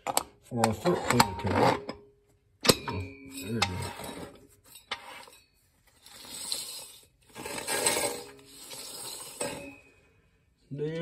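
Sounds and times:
metallic clinks and scraping: 0:02.6 - 0:10.3.

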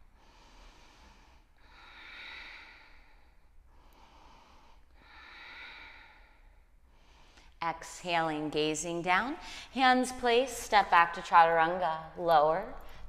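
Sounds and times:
woman breathing slowly: 0:00.0 - 0:07.6, 0:09.4 - 0:09.8.

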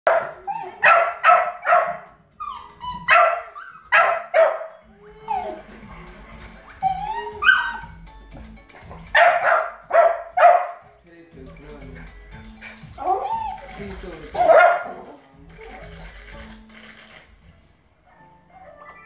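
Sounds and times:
television music and sound: 0:00.0 - 0:19.0
dog barking: 0:00.1 - 0:05.6, 0:06.8 - 0:07.9, 0:09.1 - 0:10.8, 0:14.3 - 0:15.2.

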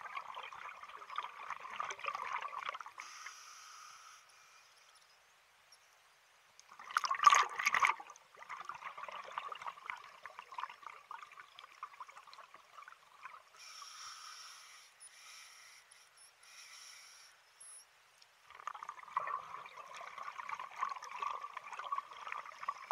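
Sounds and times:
exhaled bubbles gurgling underwater: 0:00.0 - 0:03.0, 0:06.7 - 0:13.6, 0:18.5 - 0:22.9
regulator inhalation hiss: 0:03.0 - 0:04.9, 0:13.6 - 0:17.9.

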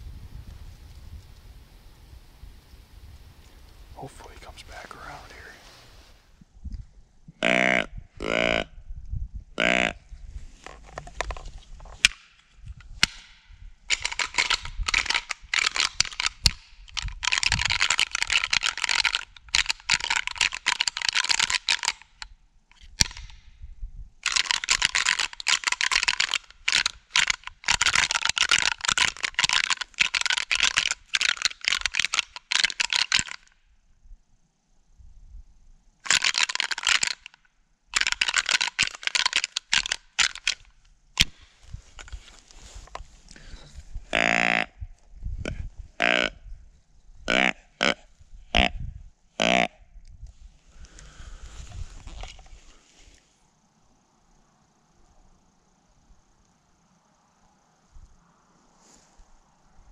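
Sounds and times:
deer rattling call clacking: 0:13.9 - 0:22.2, 0:24.2 - 0:33.5, 0:36.0 - 0:41.3, 0:47.3 - 0:48.0.

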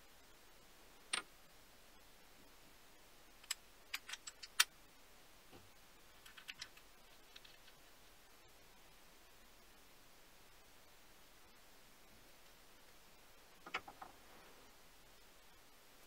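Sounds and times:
small metal parts clinking: 0:03.4 - 0:04.7, 0:06.2 - 0:07.7.

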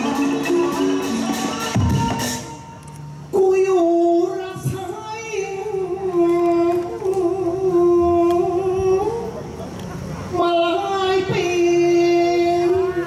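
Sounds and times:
person singing into microphone: 0:03.3 - 0:09.4, 0:10.3 - 0:13.0.

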